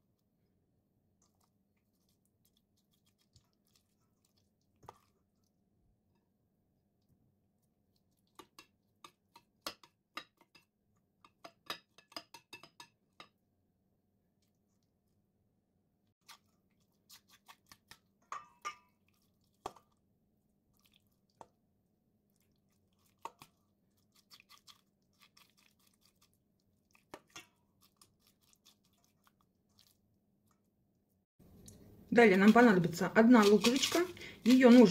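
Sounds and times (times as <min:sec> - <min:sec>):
wet scraping and squelching: 0:01.1 - 0:06.2, 0:16.2 - 0:21.6, 0:22.3 - 0:30.8, 0:31.5 - 0:34.9.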